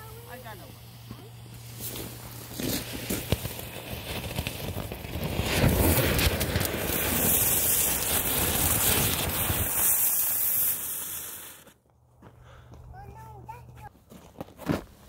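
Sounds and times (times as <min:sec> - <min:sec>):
firework fountain hissing: 0:00.0 - 0:11.8.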